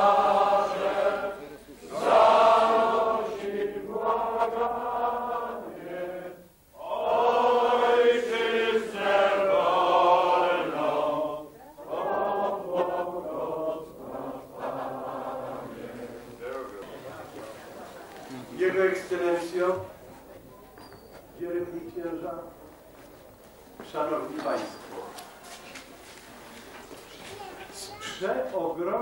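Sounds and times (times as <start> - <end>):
crowd singing together: 0.0 - 19.9.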